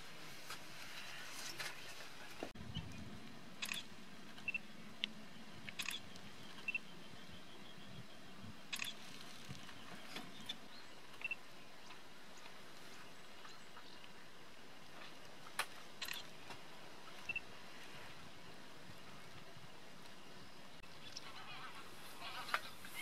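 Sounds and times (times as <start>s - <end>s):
steady faint hiss: 0.0s - 23.0s
sharp high bird calls: 5.7s - 8.0s.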